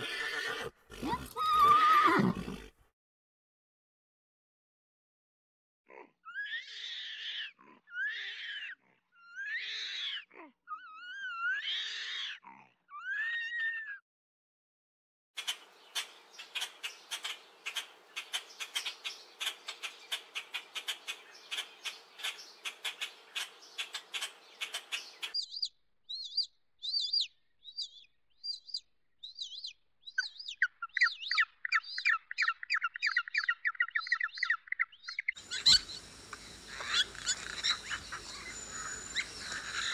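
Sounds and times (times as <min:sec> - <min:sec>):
animal calls rising and falling: 0:00.0 - 0:02.4, 0:35.4 - 0:39.9
chirps and fast trill: 0:35.4 - 0:39.9
rapid clicking chatter: 0:35.4 - 0:39.9.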